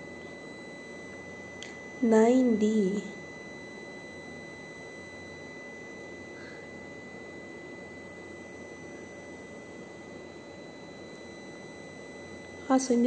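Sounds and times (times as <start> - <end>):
high-pitched whine: 0.0 - 13.0
steady low hum: 0.0 - 13.0.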